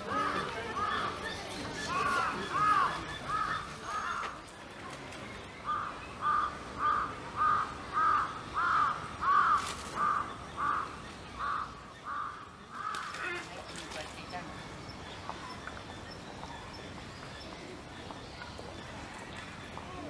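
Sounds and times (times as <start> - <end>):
crow cawing: 1.9 - 4.4, 5.7 - 13.5.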